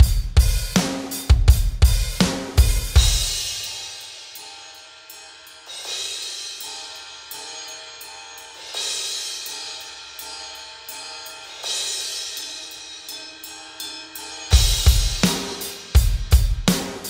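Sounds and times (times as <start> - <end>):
backing music held notes: 0.0 - 17.0
cymbal crashes: 0.0 - 17.0
electronic drum hits: 14.5 - 17.0.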